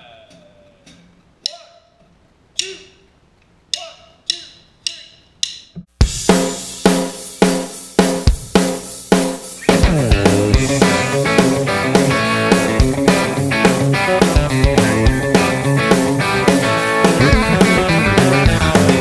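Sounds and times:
drumsticks clicking together: 0:02.6 - 0:02.8, 0:03.4 - 0:05.8
country band playing: 0:09.6 - 0:19.0.

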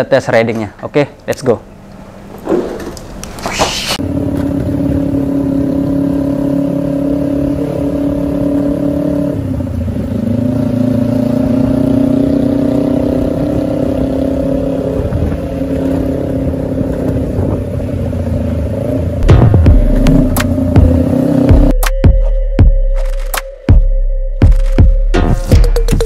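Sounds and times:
motorcycle engine running: 0:04.0 - 0:21.8.

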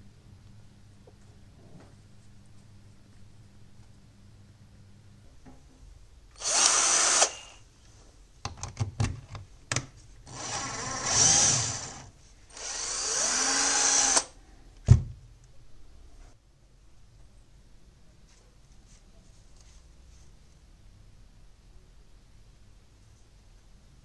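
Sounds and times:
power drill running: 0:06.4 - 0:07.6, 0:10.3 - 0:14.3.

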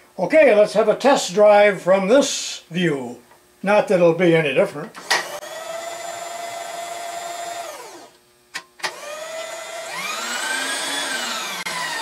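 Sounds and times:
electric motor whine: 0:05.0 - 0:08.2, 0:08.8 - 0:12.0.

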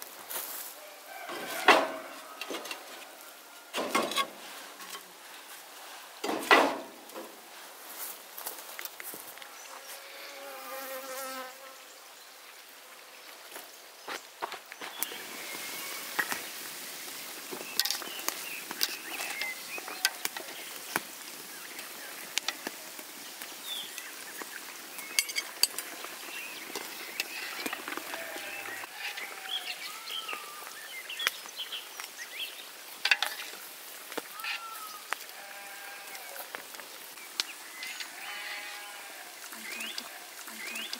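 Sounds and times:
birds chirping: 0:14.0 - 0:33.6, 0:37.1 - 0:40.9.

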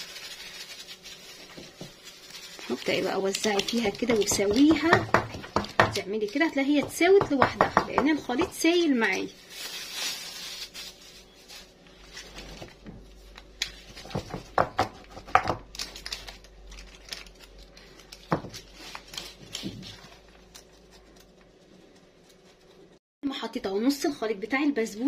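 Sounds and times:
plastic glove crinkling: 0:00.0 - 0:07.1, 0:08.3 - 0:14.4, 0:15.1 - 0:23.0.

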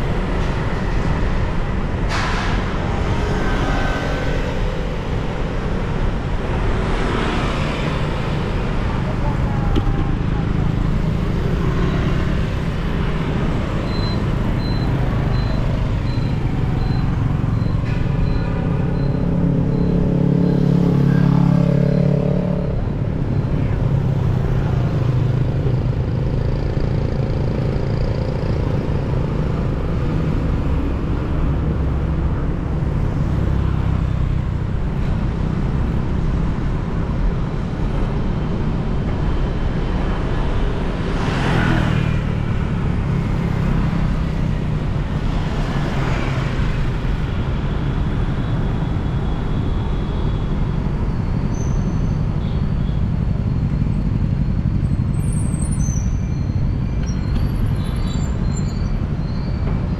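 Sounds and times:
street traffic hum: 0:00.0 - 0:59.9
faint high beeps: 0:13.8 - 0:22.1.

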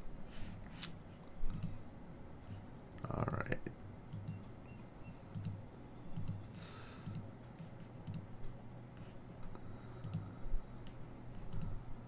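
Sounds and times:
low steady hum: 0:00.0 - 0:12.0
computer mouse clicking: 0:00.7 - 0:01.8, 0:04.1 - 0:04.6, 0:05.3 - 0:05.6, 0:06.2 - 0:08.6, 0:09.4 - 0:11.8.

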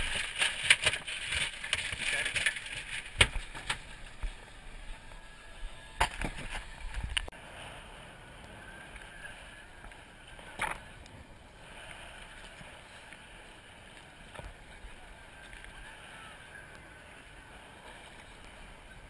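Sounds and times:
sea washing against boat hull: 0:00.0 - 0:04.5.

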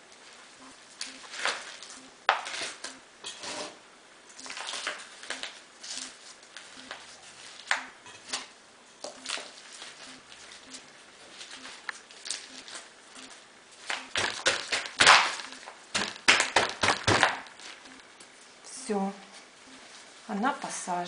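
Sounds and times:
soil and plastic pot rustling: 0:04.4 - 0:20.4
plastic pot cracking: 0:13.8 - 0:17.8.

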